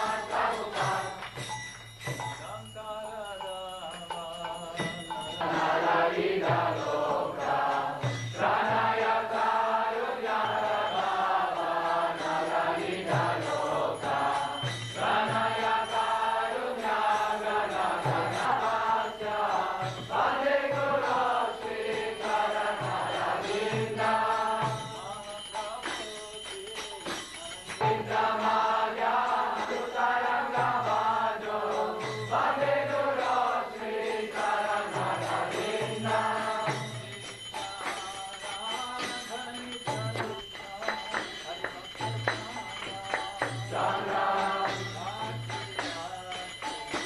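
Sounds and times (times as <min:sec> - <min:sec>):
men chanting together: 0:00.0 - 0:01.4, 0:04.8 - 0:26.1, 0:27.1 - 0:47.0
small hand cymbals ringing: 0:00.0 - 0:47.0
hand drum beat: 0:25.8 - 0:28.4, 0:39.8 - 0:47.0.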